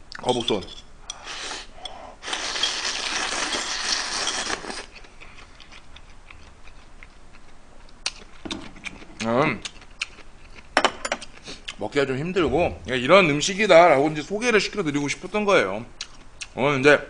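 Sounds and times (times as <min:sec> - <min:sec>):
slurping noodles: 0:01.2 - 0:04.9
chewing with mouth clicks: 0:03.7 - 0:11.8, 0:16.0 - 0:16.6.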